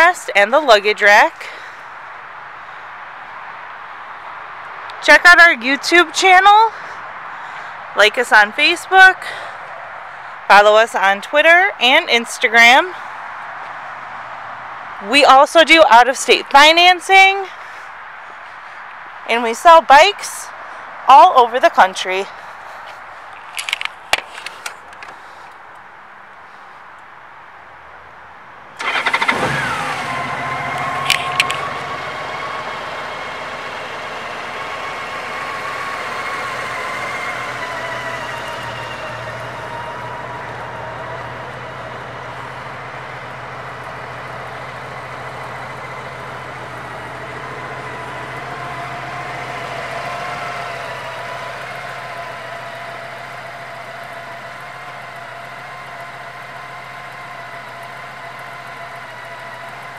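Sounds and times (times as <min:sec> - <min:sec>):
sharp clicks: 0:23.4 - 0:25.2, 0:30.8 - 0:31.7
motorcycle engine idling: 0:28.8 - 0:59.9.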